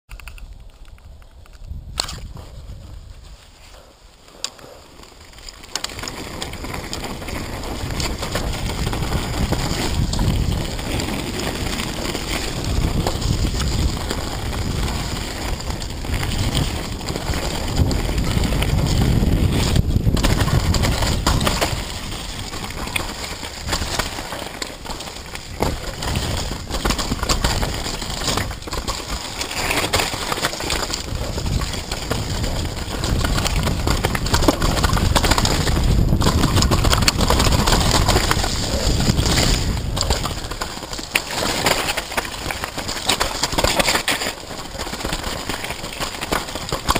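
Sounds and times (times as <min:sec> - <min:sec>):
tyre noise on dirt trail: 0:00.1 - 0:46.9
wind buffeting microphone: 0:00.4 - 0:03.9, 0:06.5 - 0:24.0, 0:30.8 - 0:40.6
bike rattling and knocking: 0:05.2 - 0:46.9.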